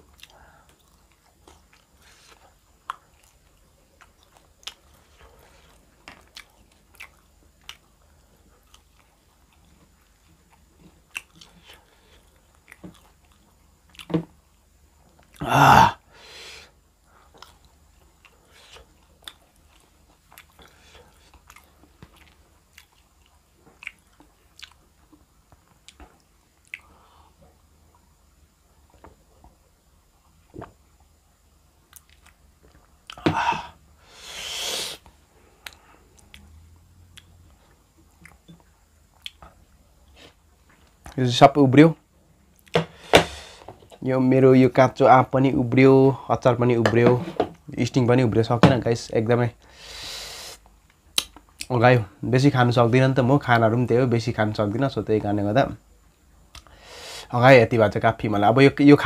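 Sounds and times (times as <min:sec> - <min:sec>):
person chewing: 0:00.0 - 0:08.0, 0:08.6 - 0:14.1, 0:17.3 - 0:27.2, 0:37.1 - 0:41.1.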